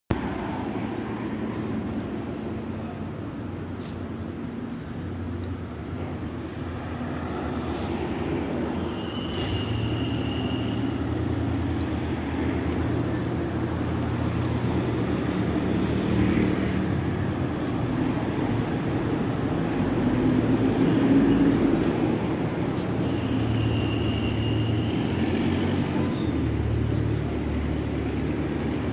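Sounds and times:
cars driving past: 0.1 - 28.9
short high squeal: 8.6 - 11.0, 22.8 - 25.2.

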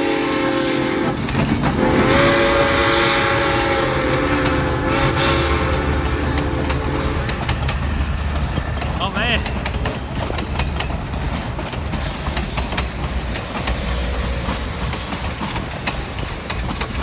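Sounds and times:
steam locomotive whistle: 0.0 - 7.5
train rumbling past: 0.0 - 17.0
wheels clicking on rail joints: 0.9 - 17.0.

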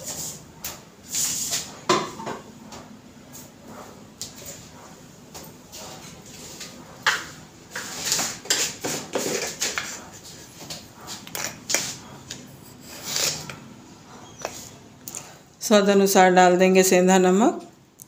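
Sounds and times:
dishes and utensils clinking: 8.2 - 13.7.

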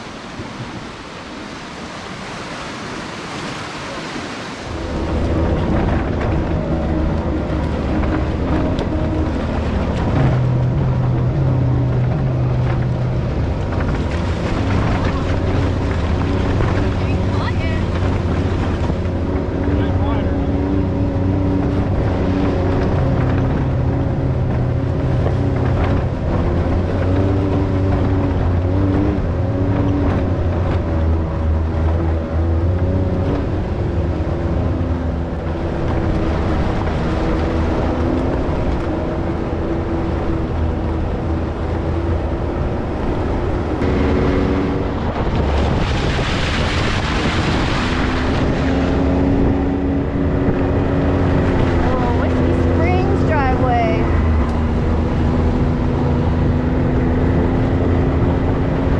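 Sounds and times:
off-road vehicle engine running: 4.6 - 58.9
rushing noise: 35.3 - 57.0.

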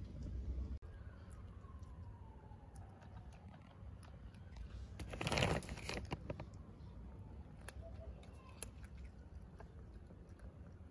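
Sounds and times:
cat crunching dry kibble: 1.7 - 6.6, 7.4 - 10.9
crinkling rustle: 3.4 - 6.6.

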